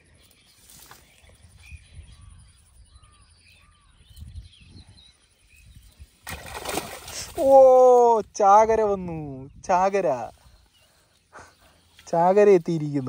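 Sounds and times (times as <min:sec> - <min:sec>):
net splashing out of water: 0:06.2 - 0:07.6
faint bird calls: 0:10.3 - 0:12.2.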